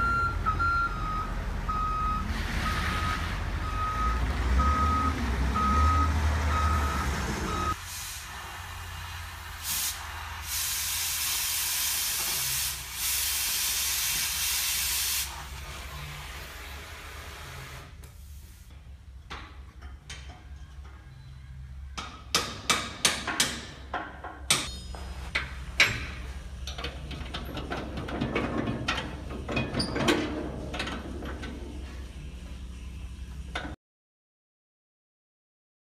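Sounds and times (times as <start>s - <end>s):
backup alarm beeping: 0.0s - 7.8s
welding arc hissing: 7.8s - 18.7s
metal clinks and knocks: 23.2s - 31.7s.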